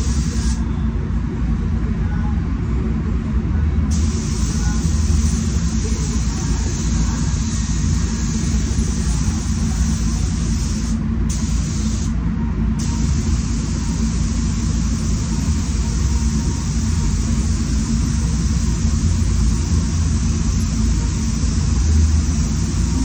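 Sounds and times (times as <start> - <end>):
spray gun hissing: 0.0 - 0.6, 3.9 - 12.1, 12.8 - 23.0
ventilation fans rumbling: 0.0 - 23.0.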